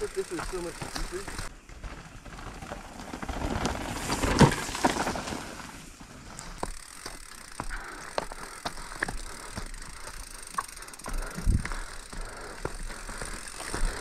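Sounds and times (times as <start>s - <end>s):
bike rattling over bumps: 0.0s - 14.0s
bike tyres on dirt and stones: 0.0s - 14.0s.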